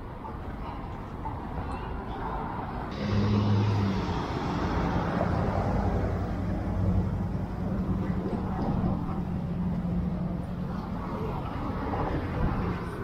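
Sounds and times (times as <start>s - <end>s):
road noise: 0.0s - 13.0s
vehicle engine humming: 2.7s - 13.0s.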